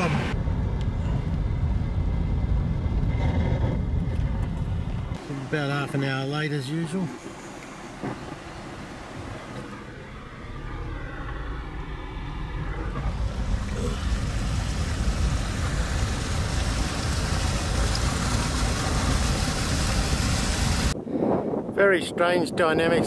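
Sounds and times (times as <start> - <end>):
engine and road rumble: 0.0 - 21.0
tyres hissing on wet road: 5.2 - 11.2, 12.2 - 21.0.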